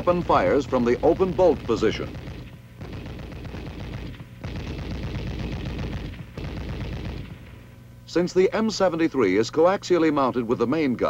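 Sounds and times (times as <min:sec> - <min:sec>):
machine gun firing bursts: 0:00.0 - 0:07.7.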